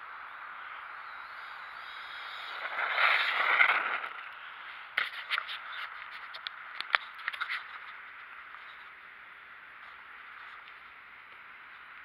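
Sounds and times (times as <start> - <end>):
rc car motor whine: 0.0 - 6.3.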